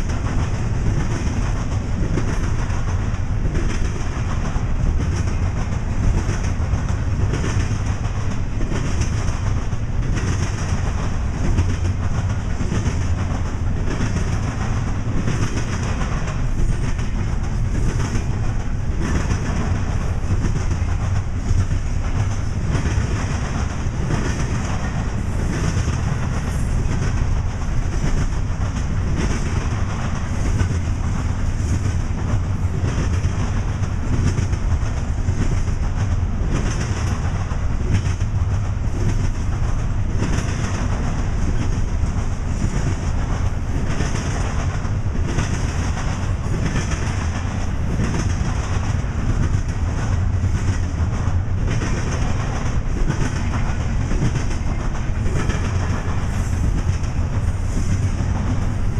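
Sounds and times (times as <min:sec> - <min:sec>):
train cars rolling rumble: 0:00.0 - 0:58.9
wheels clacking over rail joints: 0:00.0 - 0:58.9.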